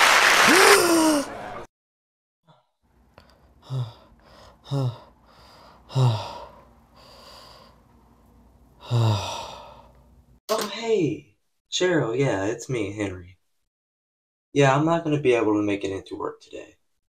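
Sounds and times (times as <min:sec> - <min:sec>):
man breathing hard: 0:03.2 - 0:07.9, 0:08.8 - 0:10.0.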